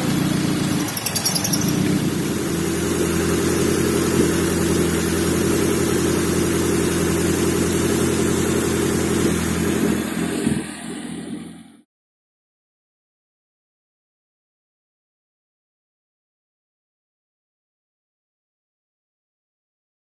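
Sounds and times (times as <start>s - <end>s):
petrol engine idling: 0.0s - 11.8s.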